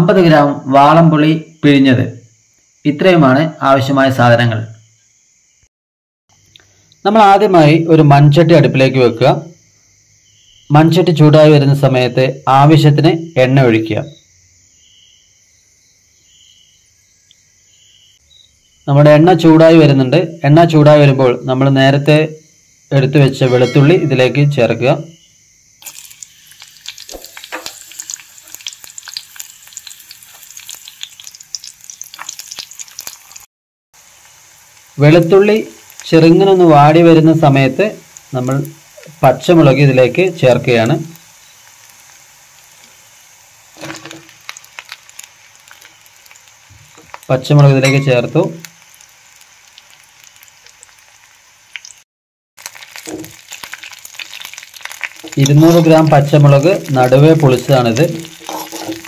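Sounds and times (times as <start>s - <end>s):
garlic frying in oil: 25.4s - 52.0s, 52.6s - 59.0s
steel spoon stirring and scraping: 58.1s - 59.0s.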